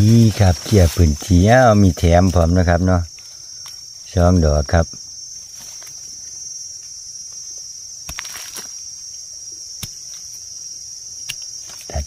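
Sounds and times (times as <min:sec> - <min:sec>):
forest insects droning: 0:00.0 - 0:12.0
knife trimming mushroom stems: 0:08.0 - 0:08.9, 0:09.7 - 0:10.5, 0:11.1 - 0:12.0.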